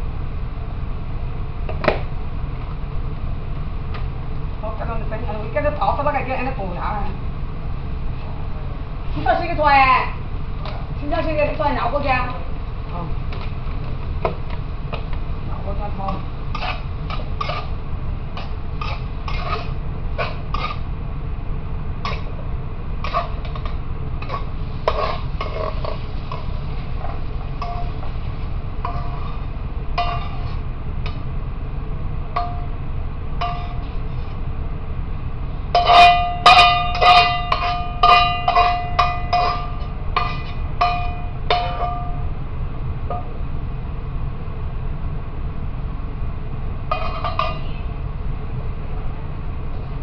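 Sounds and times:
steady low hum: 0.0s - 50.0s
ringing metal strikes: 32.4s - 32.8s, 35.8s - 42.3s.

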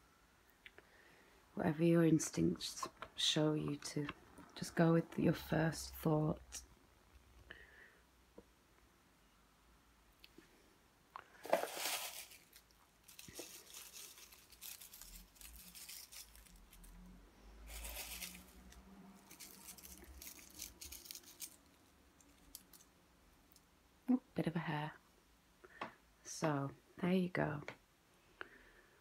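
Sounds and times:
cards rustling and sliding: 11.4s - 16.8s, 17.7s - 21.7s.

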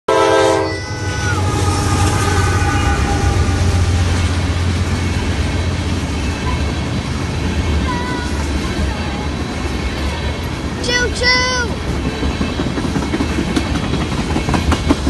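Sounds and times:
locomotive air horn: 0.1s - 5.0s
freight cars rumbling past: 0.4s - 15.0s.

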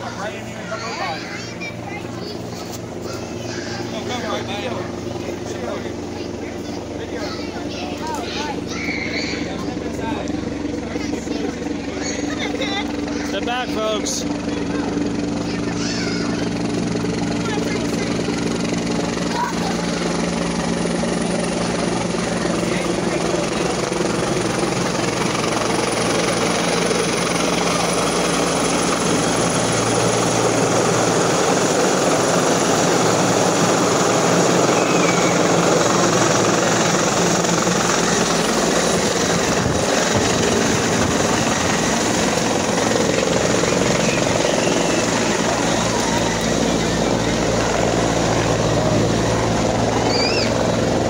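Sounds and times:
helicopter flying low overhead: 0.0s - 51.0s.

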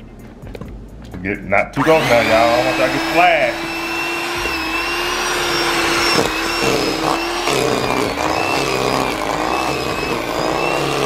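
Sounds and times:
electric hand mixer running: 1.8s - 11.0s.

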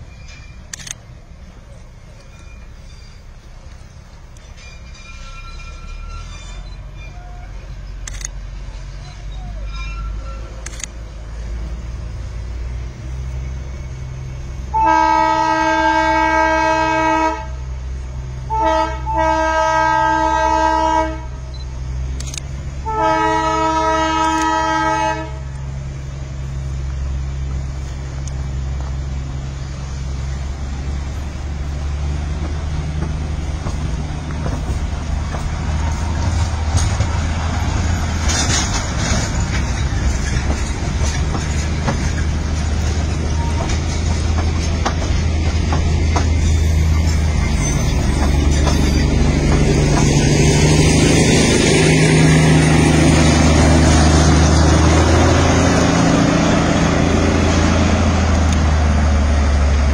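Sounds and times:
train rumbling and rattling: 0.0s - 59.9s
locomotive whistle blasts: 14.7s - 17.5s, 22.8s - 25.4s.

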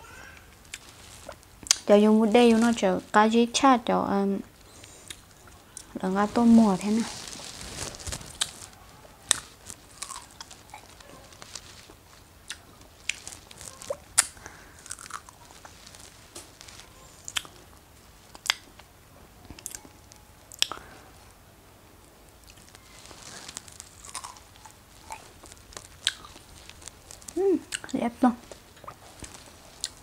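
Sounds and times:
person chewing strawberries: 0.6s - 1.9s, 4.7s - 17.7s, 18.3s - 18.8s, 19.5s - 20.9s, 22.4s - 30.0s
sharp mouth clicks and smacks: 20.5s - 20.8s.

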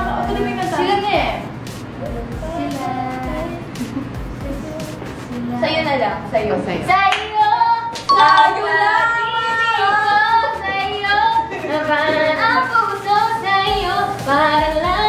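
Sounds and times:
women singing unaccompanied: 7.3s - 15.0s.

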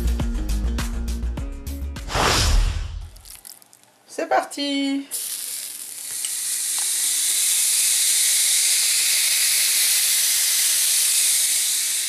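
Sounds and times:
fish sizzling on a griddle: 5.2s - 12.0s.

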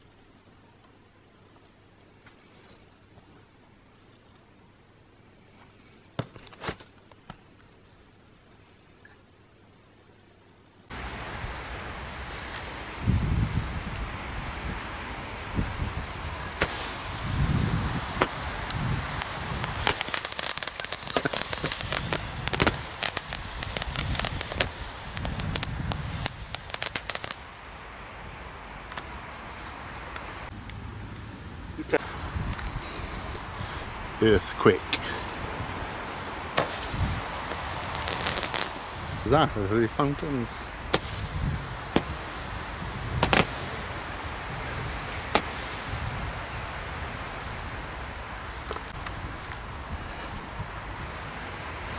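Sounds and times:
firework crackling: 10.9s - 30.5s, 31.8s - 51.9s.

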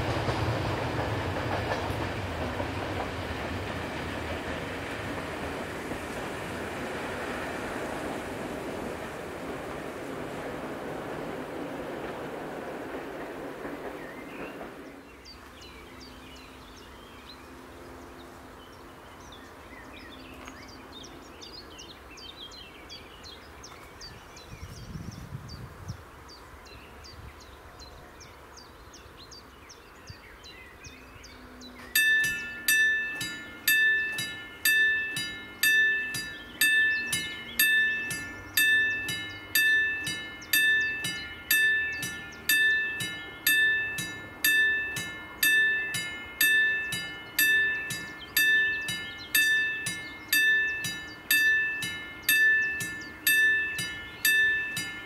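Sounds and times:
level crossing warning bell ringing: 0.0s - 12.6s, 32.0s - 55.0s.

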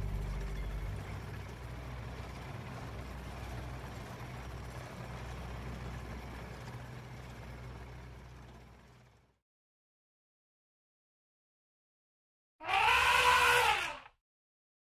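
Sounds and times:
vehicle engine humming: 0.0s - 9.4s.

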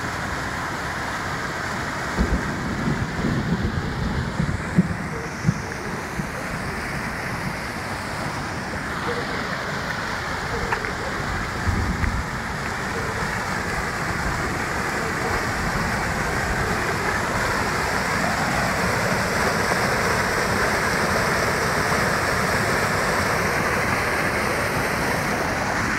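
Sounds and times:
stream rushing over drop: 0.0s - 25.9s.

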